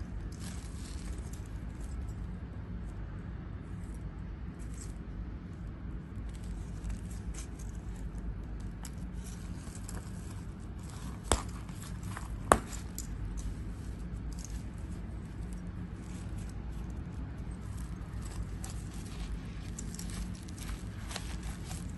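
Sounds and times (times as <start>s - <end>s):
low hum: 0.0s - 21.9s
wallet handling scraping: 6.2s - 21.9s.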